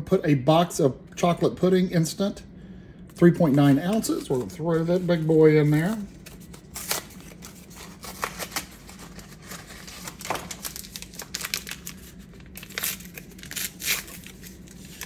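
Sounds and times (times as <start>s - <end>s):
packaging crinkling and tearing: 3.5s - 15.0s.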